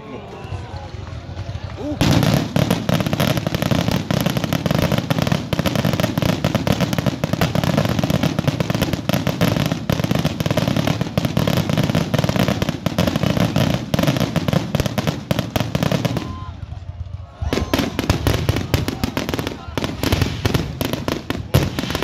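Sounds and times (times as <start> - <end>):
fireworks bursting and crackling: 0.0 - 22.0.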